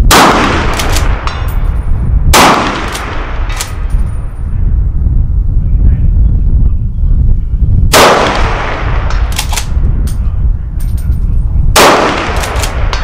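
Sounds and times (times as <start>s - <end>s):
rifle shots with echo: 0.0s - 1.7s, 2.3s - 3.9s, 7.9s - 9.8s, 11.7s - 13.0s.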